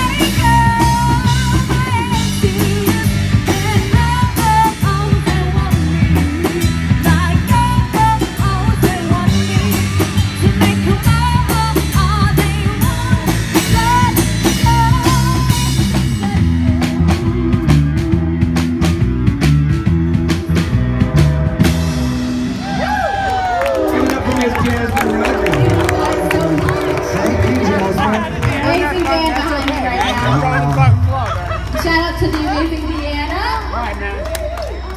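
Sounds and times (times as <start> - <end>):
woman singing: 0.0 - 16.6
rock band playing: 0.0 - 33.9.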